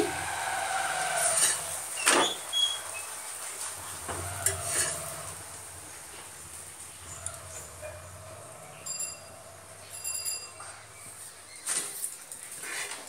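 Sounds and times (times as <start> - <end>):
metal spatula scraping griddle: 1.1 - 2.4, 3.6 - 5.6.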